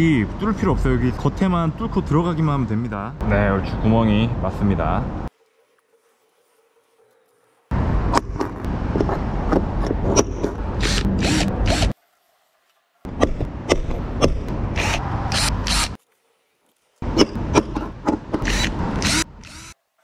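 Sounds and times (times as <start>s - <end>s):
electric drill boring: 10.8s - 11.9s, 14.8s - 16.0s, 18.4s - 19.8s.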